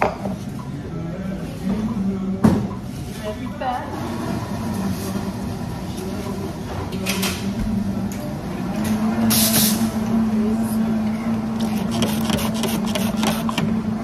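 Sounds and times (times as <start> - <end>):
espresso machine hum: 10.0 - 14.0.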